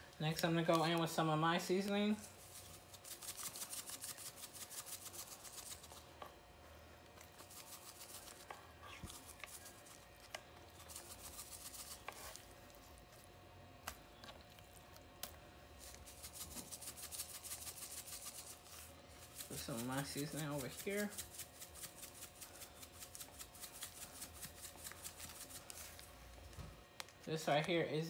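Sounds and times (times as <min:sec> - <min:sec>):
shaker jar rattling: 0:00.3 - 0:06.0, 0:07.4 - 0:08.5, 0:10.8 - 0:12.4, 0:15.8 - 0:25.9.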